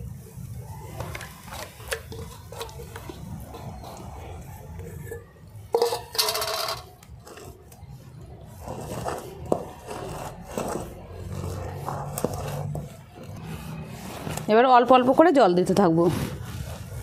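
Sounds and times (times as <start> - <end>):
steel bowls scraping and ringing: 2.1 - 15.3
hands kneading dough in bowl: 7.0 - 17.0.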